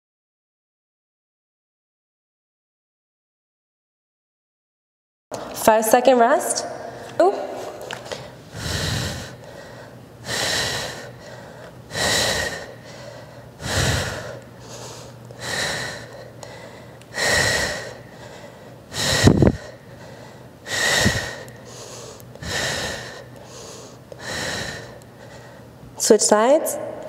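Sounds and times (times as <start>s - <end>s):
woman breathing hard: 6.8s - 25.8s.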